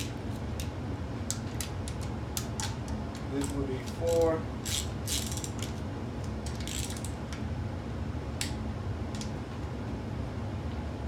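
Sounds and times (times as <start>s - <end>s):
torque wrench ratchet clicking: 3.4s - 5.7s, 6.6s - 7.1s.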